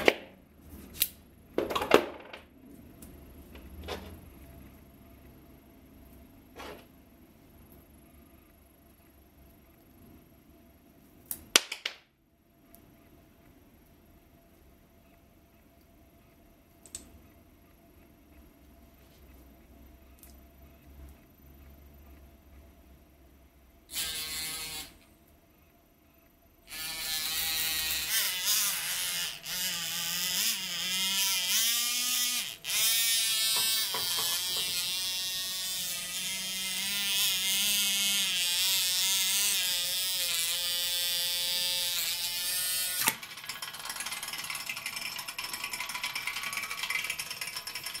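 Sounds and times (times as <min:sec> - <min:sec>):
small electric motor whining: 0:23.9 - 0:25.0, 0:26.7 - 0:43.1.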